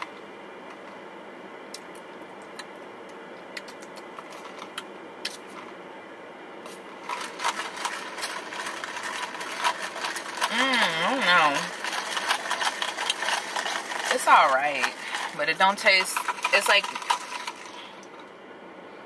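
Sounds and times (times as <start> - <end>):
ice rattling in plastic cup: 7.0 - 18.1.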